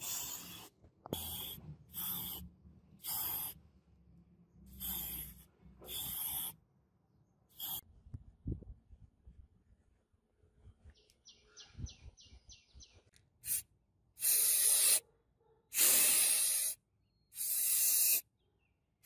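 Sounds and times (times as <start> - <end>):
spray paint hissing: 0.0 - 3.6, 4.7 - 6.6, 7.5 - 7.8, 13.4 - 15.0, 15.7 - 16.8, 17.4 - 18.2.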